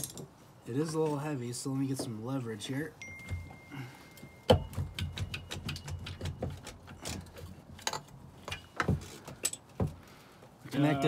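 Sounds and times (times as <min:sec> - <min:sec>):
metal clicks and knocks: 0:04.4 - 0:10.0.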